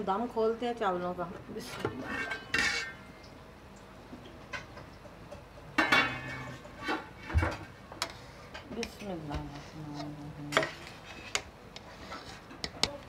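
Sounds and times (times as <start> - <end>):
metal spatula scraping pot: 1.7 - 3.2, 5.8 - 7.3, 8.0 - 13.0
metal pot lid clanking: 5.8 - 7.0.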